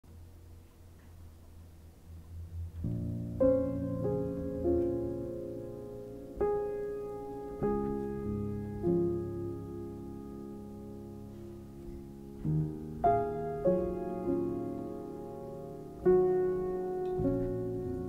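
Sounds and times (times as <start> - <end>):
gentle piano music: 1.2 - 18.0.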